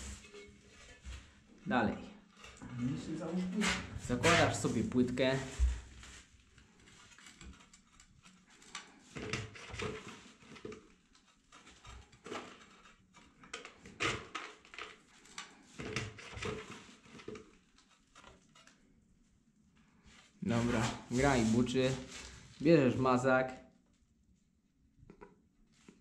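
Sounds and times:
ceramic tile scraping: 2.4 - 18.8, 20.4 - 22.5.

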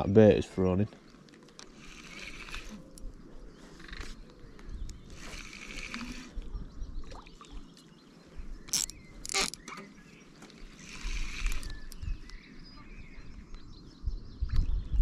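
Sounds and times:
fishing reel clicks: 1.6 - 3.2, 3.8 - 4.2, 4.8 - 6.5, 10.7 - 12.0
fishing reel whirring: 1.6 - 3.2, 3.8 - 4.2, 4.9 - 6.5, 10.6 - 12.2.

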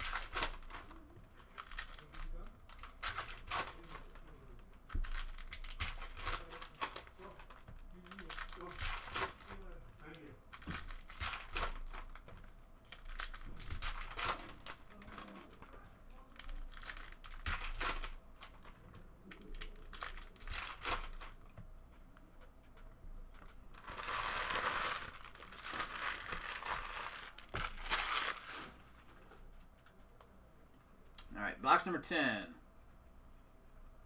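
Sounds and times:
foil wrappers tearing and crinkling: 0.0 - 21.4, 23.7 - 28.8
cards rustling and snapping: 0.0 - 30.1.

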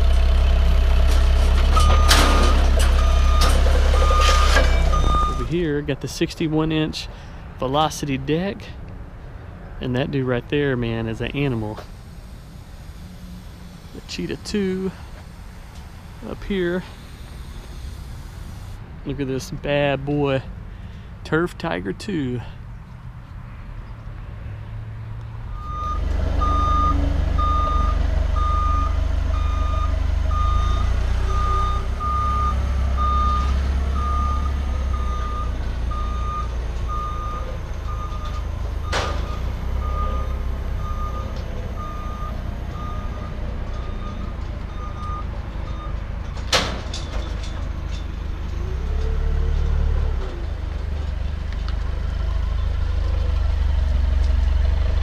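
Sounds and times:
forklift engine running: 0.0 - 5.7, 10.4 - 18.8, 25.5 - 55.0
reversing alarm beeping: 1.8 - 5.5, 25.5 - 45.9.

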